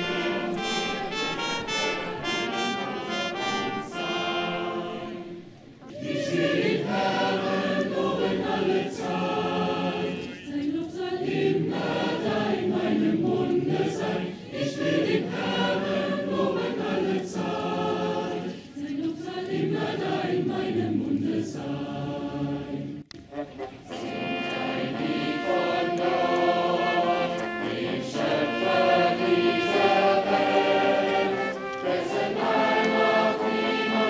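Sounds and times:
large crowd singing together: 0.0s - 34.0s.

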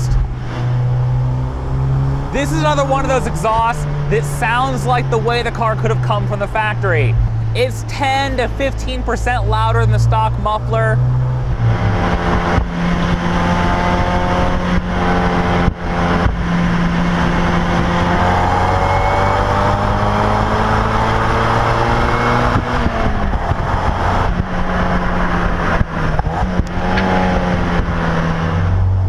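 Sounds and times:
car engine revving under load: 0.0s - 29.0s.

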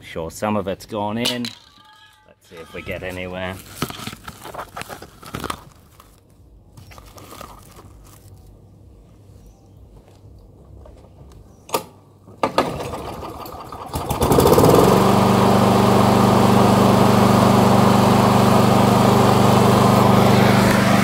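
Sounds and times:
lawn mower engine running: 12.4s - 21.0s.

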